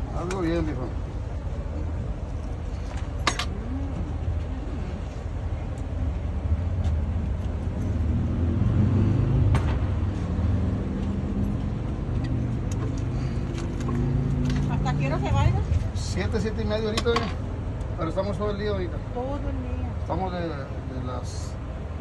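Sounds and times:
vehicle engine rumbling: 0.0s - 22.0s.

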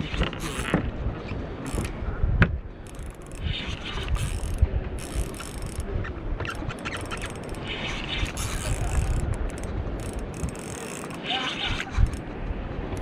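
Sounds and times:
fishing reel clicking ratchet: 2.9s - 3.5s, 4.1s - 5.9s, 6.7s - 7.6s, 8.2s - 11.2s.

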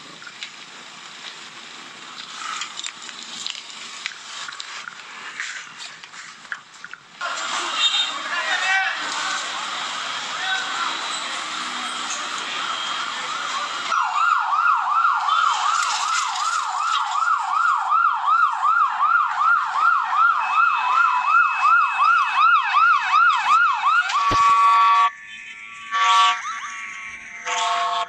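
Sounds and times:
siren yelping: 10.4s - 28.0s.

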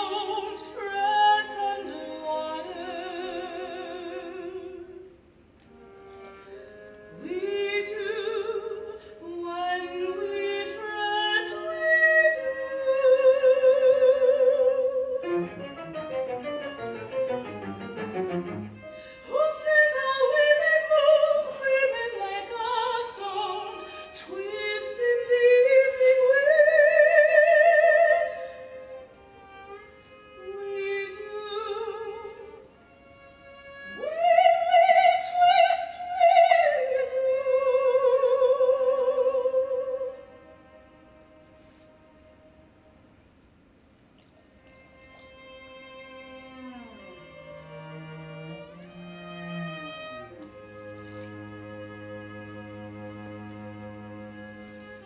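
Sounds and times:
soprano singing with vibrato: 0.0s - 5.1s, 7.1s - 15.6s, 19.2s - 28.8s, 33.8s - 40.4s
string quartet: 0.0s - 55.0s.

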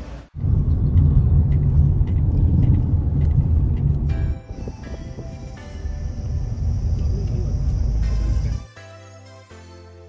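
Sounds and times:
car rumbling inside cabin: 0.3s - 8.6s
background music with steady tones: 4.1s - 10.0s.

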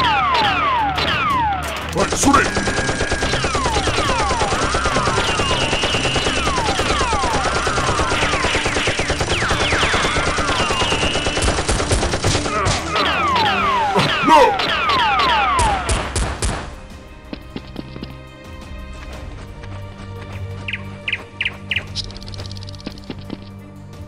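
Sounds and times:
machine-gun fire: 2.0s - 13.0s.

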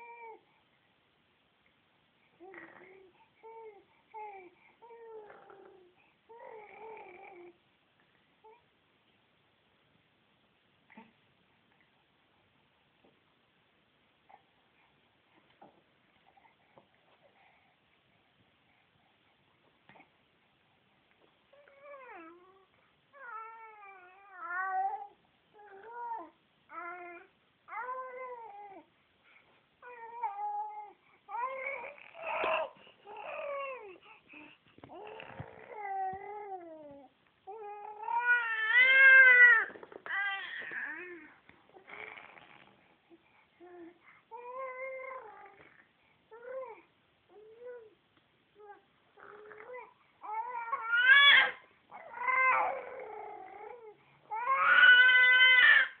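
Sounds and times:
baby cooing: 2.4s - 7.6s, 29.8s - 34.1s, 34.8s - 42.6s, 48.6s - 56.0s.

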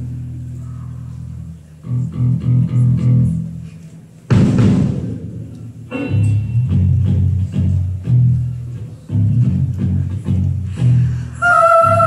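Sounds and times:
short bass notes: 0.0s - 3.7s, 4.3s - 12.0s
drum crash: 4.3s - 6.8s
rock band playing: 4.3s - 11.2s.

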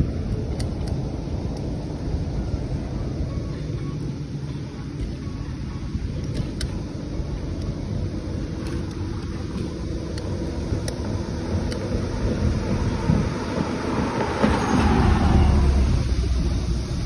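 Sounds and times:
wind on microphone: 7.8s - 17.0s.

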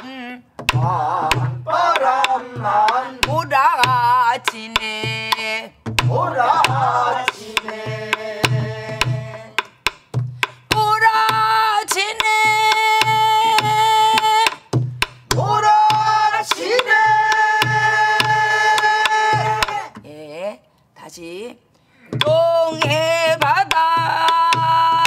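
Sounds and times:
barrel drum thumps: 0.6s - 2.0s, 5.0s - 11.6s, 12.4s - 16.3s, 22.2s - 25.0s
group singing long notes: 0.7s - 3.9s, 5.1s - 9.7s, 15.4s - 19.9s
drum stick clicks: 7.2s - 15.4s.

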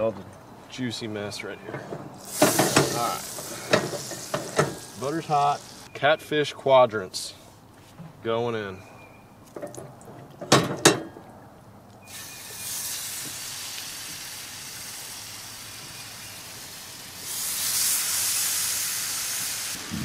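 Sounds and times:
fish sizzling in butter: 2.2s - 5.9s, 12.1s - 20.0s.

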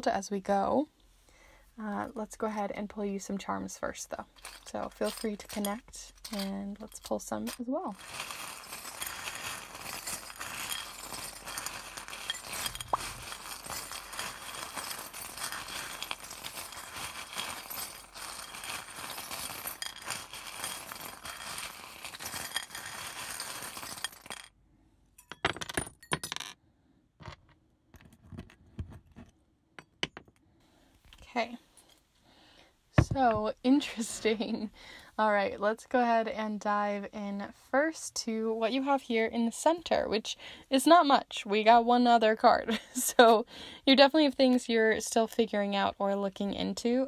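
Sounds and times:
small trinkets jingling: 4.2s - 24.5s.

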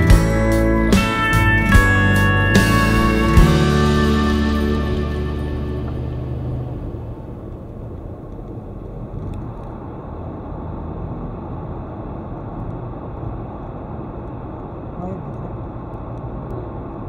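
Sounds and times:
car road and engine rumble: 0.0s - 17.0s.

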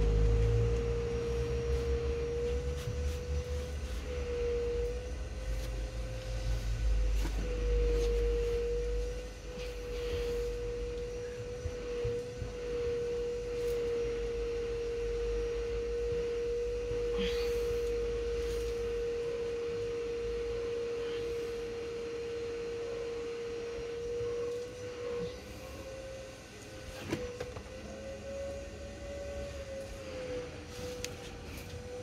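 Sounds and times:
steady electronic tone: 0.0s - 25.4s.

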